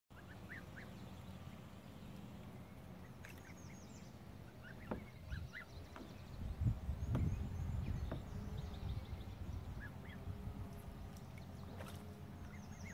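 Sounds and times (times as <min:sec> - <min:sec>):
geese soft calls: 0:00.1 - 0:01.2, 0:02.4 - 0:06.1
water splash: 0:11.1 - 0:12.2.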